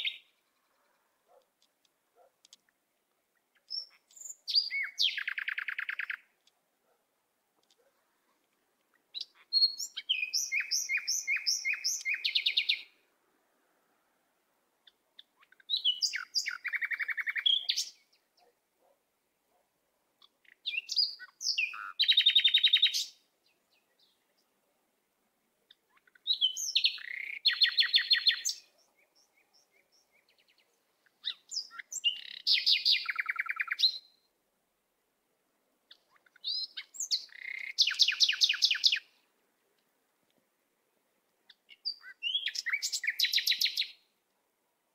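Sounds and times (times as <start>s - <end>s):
songbird singing: 0.0s - 34.4s, 35.5s - 44.3s.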